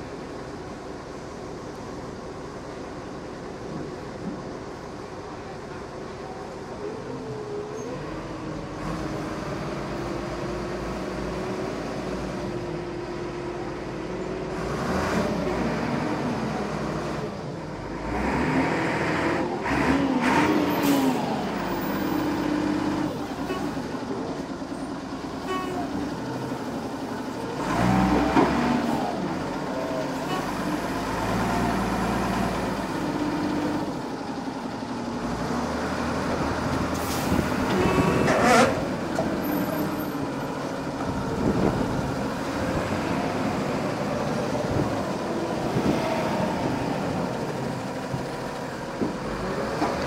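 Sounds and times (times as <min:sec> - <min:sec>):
forklift engine under load: 0:00.0 - 0:50.0.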